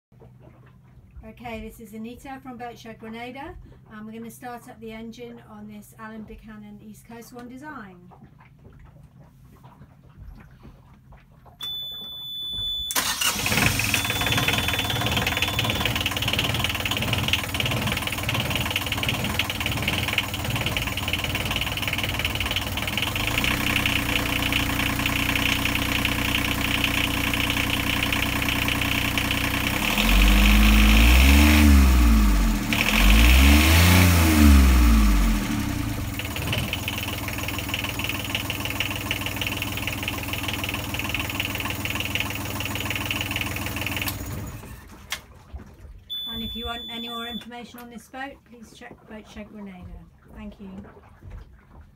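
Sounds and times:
diesel engine idling and revving: 0:12.9 - 0:44.8.

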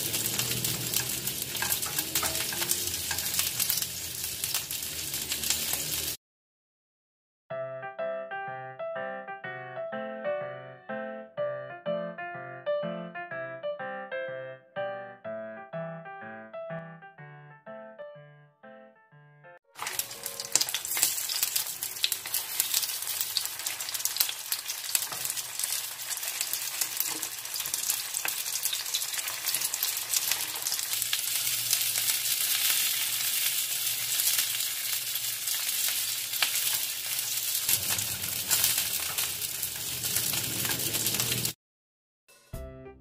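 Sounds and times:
dumplings sizzling in frying pan: 0:00.0 - 0:06.2, 0:19.8 - 0:41.6.

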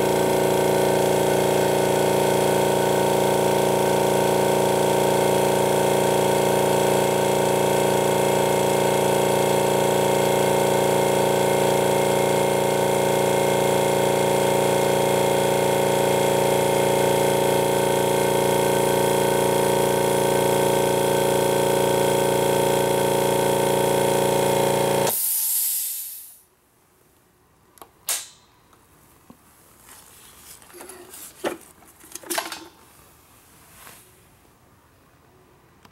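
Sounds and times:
air compressor humming: 0:00.0 - 0:26.4
short hiss of air: 0:25.1 - 0:26.5.

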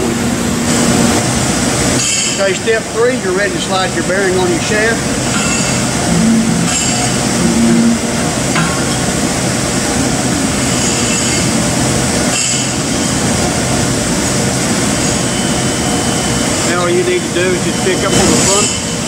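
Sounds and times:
mechanical hum: 0:00.0 - 0:19.0.

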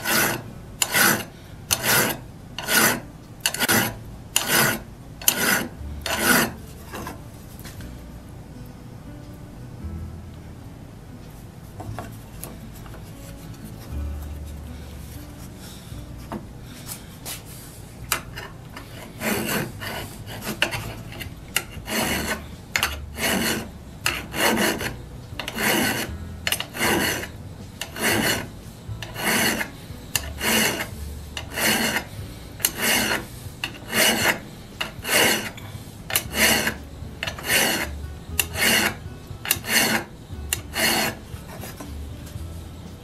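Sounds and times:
hand file rasping on steel: 0:00.0 - 0:07.2, 0:18.1 - 0:41.8.

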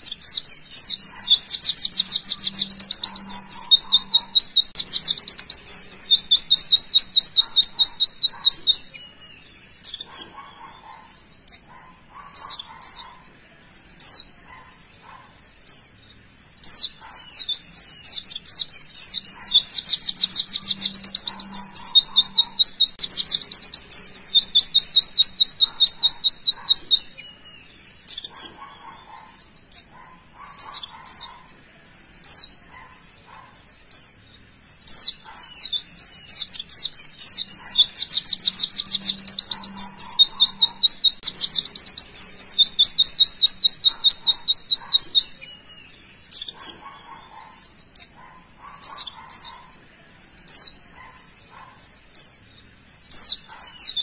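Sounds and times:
bird rapid repeated notes: 0:00.0 - 0:08.9, 0:17.2 - 0:27.2, 0:35.0 - 0:45.3
bird chirping: 0:00.0 - 0:54.0.

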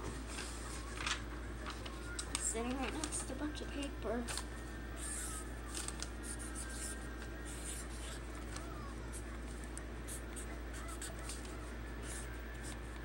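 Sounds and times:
steady low hum: 0:00.0 - 0:13.0
pen scratching on paper: 0:10.1 - 0:11.4.

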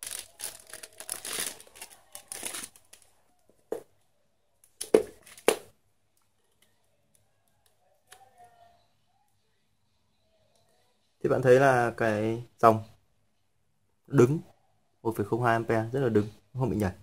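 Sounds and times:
plastic bag crinkling: 0:00.0 - 0:03.2.

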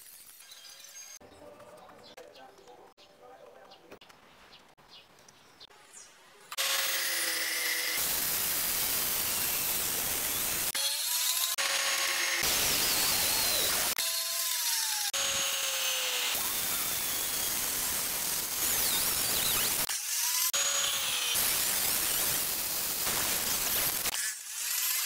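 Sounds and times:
angle grinder grinding steel: 0:06.5 - 0:25.0.

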